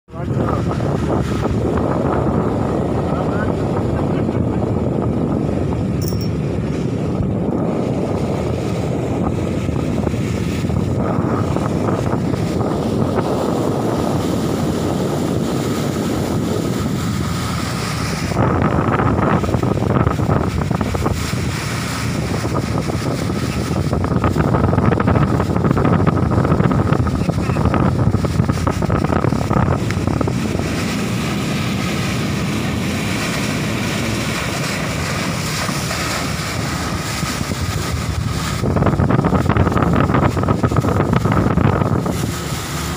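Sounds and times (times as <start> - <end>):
boat engine drone: 0.1 - 42.9
wake rushing along hull: 0.1 - 42.9
wind buffeting microphone: 0.1 - 42.9.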